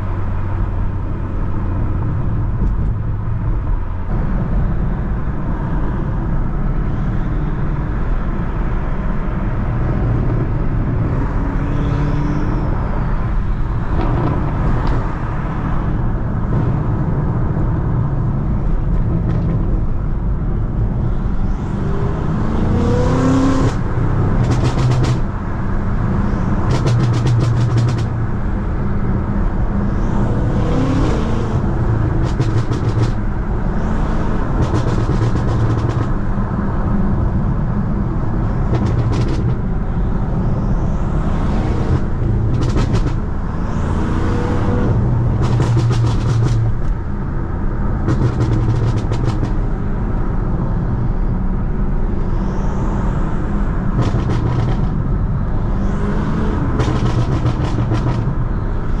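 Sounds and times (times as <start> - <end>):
car engine revving: 9.6 - 37.3, 38.0 - 47.1, 47.7 - 49.6, 52.4 - 59.0
exhaust crackling pops: 26.7 - 28.2, 54.0 - 55.0, 56.8 - 58.3.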